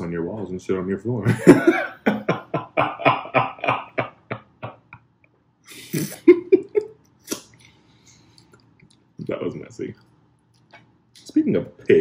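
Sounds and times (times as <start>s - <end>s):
man laughing: 1.2s - 5.1s, 5.7s - 7.4s.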